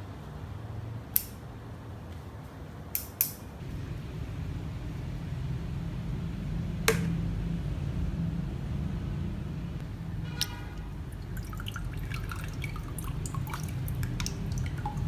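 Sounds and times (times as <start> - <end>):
steady low rumble: 3.6 - 15.0.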